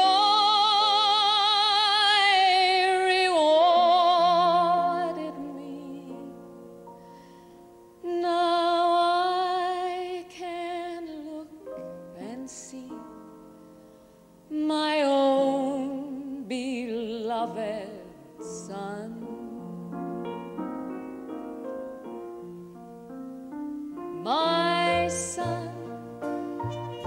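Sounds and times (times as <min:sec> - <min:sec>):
woman singing ballad: 0:00.0 - 0:06.4, 0:08.0 - 0:13.3, 0:14.5 - 0:20.1, 0:24.1 - 0:26.2
instrumental accompaniment: 0:19.2 - 0:27.0.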